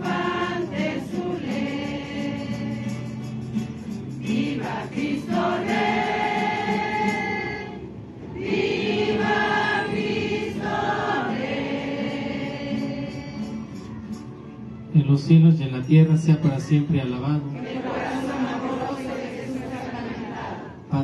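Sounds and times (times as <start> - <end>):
group singing a hymn: 0.0 - 3.4, 4.2 - 13.6, 17.4 - 20.9.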